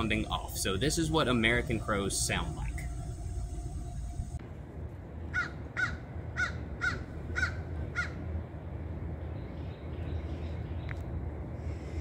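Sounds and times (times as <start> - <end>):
crows cawing: 5.4 - 8.2.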